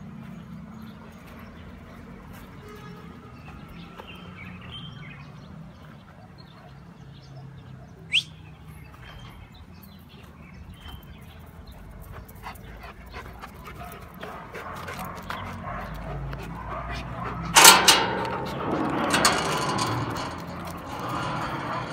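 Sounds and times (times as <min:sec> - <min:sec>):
sharp rising squeak: 0:17.5 - 0:21.9.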